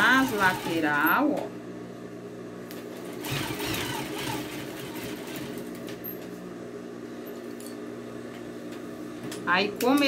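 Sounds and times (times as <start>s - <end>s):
sewing machine running: 0.0s - 1.2s, 3.0s - 5.8s.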